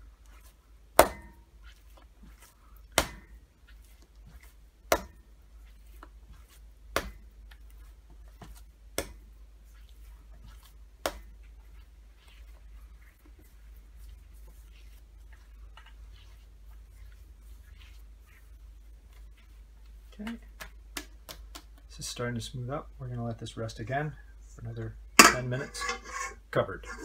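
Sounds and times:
wet dough slapped on countertop: 3.0 - 3.3, 4.9 - 5.2, 6.9 - 7.2, 9.0 - 9.2, 11.0 - 11.3.

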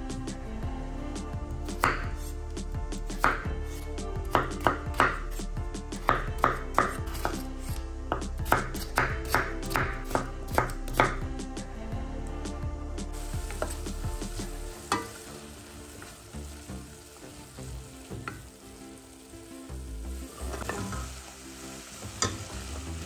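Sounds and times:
background music: 0.0 - 23.0
knife chopping on cutting board: 1.7 - 2.3, 3.1 - 5.3, 6.0 - 11.2.

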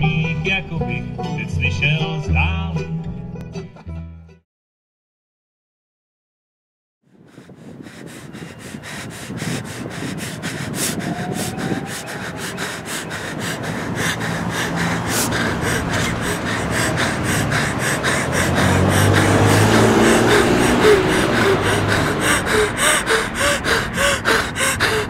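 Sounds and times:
person panting hard: 7.1 - 25.0.

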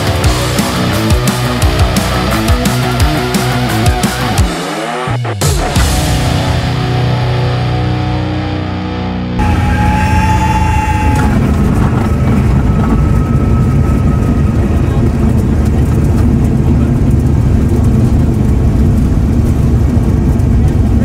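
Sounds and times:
light aircraft engine drone: 9.4 - 21.0.

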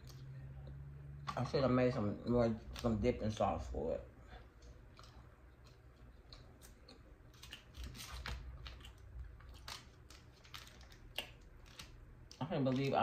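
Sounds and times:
chewing ribs: 4.4 - 13.0.

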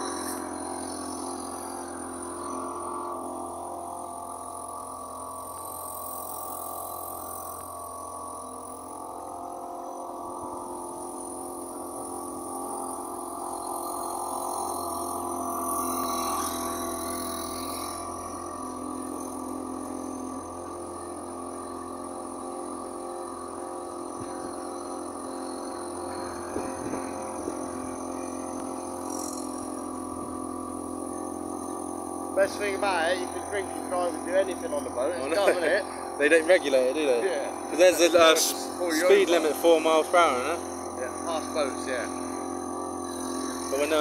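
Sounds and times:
boat engine droning: 0.0 - 44.0.

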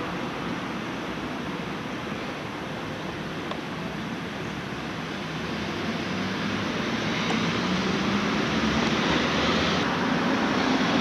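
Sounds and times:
road traffic rush: 0.0 - 11.0.

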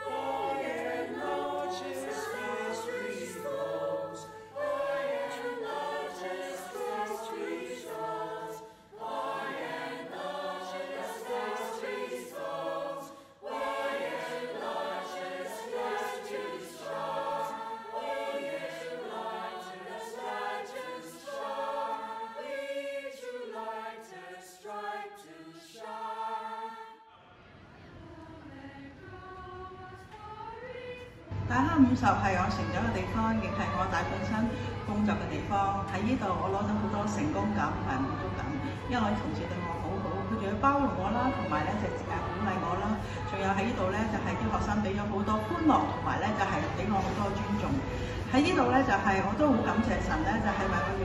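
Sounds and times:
faint room noise: 0.0 - 51.0
mixed choir singing: 0.0 - 51.0
singers breathing: 8.6 - 9.0, 13.1 - 13.4, 43.0 - 43.3, 47.8 - 48.3.

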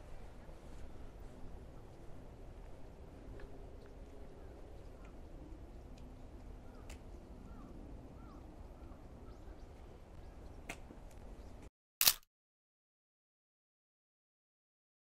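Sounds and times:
low outdoor rumble: 0.0 - 11.7.

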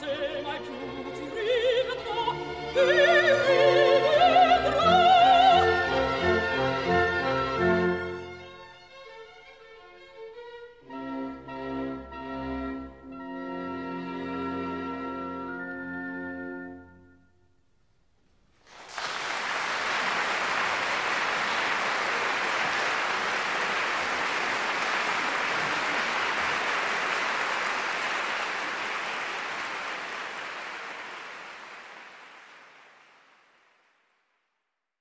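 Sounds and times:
audience applause: 18.6 - 34.3.

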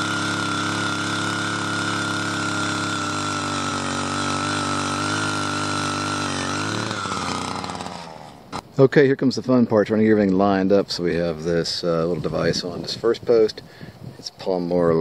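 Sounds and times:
gas auger engine running: 0.0 - 8.7.

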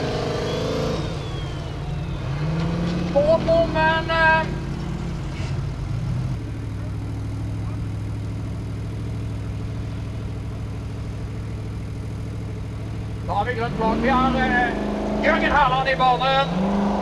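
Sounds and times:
buggy engine idling: 0.0 - 17.0.

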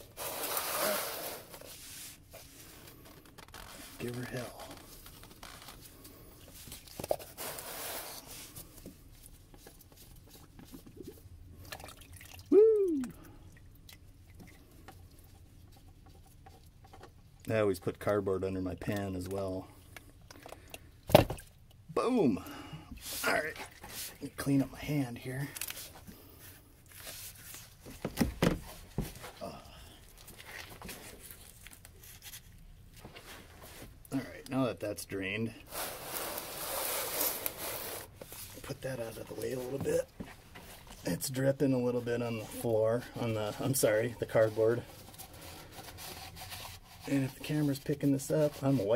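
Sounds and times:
rag wiping gloved hand: 0.2 - 2.7.

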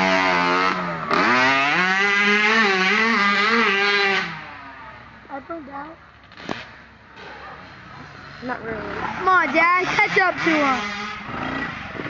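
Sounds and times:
dirt bike engine revving: 0.0 - 5.0, 7.7 - 12.0.

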